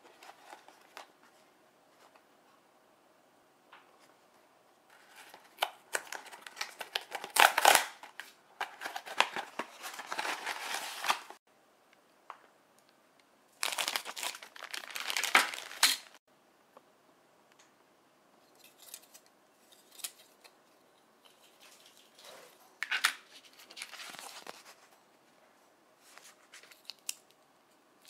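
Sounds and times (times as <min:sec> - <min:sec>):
plastic wrapper crinkling: 0:13.6 - 0:16.2.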